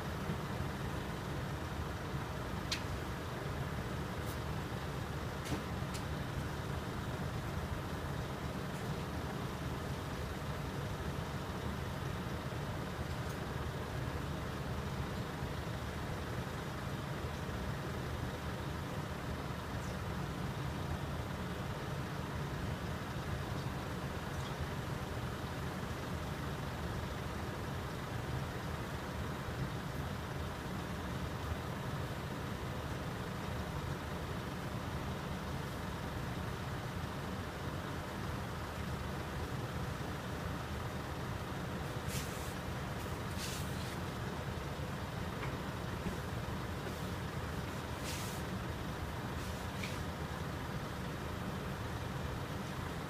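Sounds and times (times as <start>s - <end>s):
diesel engines idling: 0.0s - 53.0s
air hissing: 42.0s - 44.0s, 47.8s - 48.5s.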